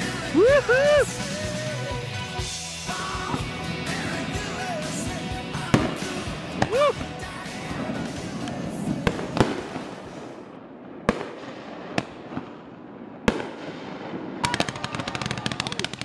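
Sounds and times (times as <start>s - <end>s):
crackling firework pops: 7.8s - 10.4s, 11.0s - 16.0s.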